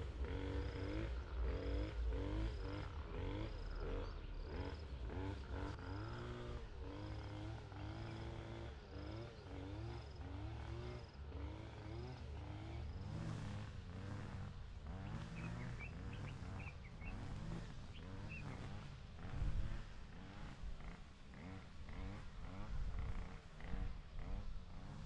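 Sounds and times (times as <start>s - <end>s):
chorus of animal calls: 15.0s - 18.7s.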